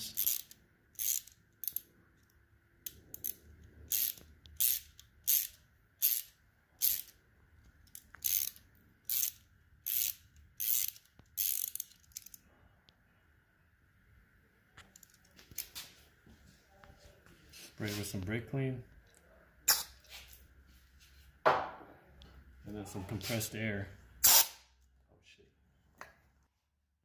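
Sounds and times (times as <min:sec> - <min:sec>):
hand ratchet clicking: 0:00.0 - 0:01.8, 0:02.8 - 0:07.2, 0:07.8 - 0:12.4.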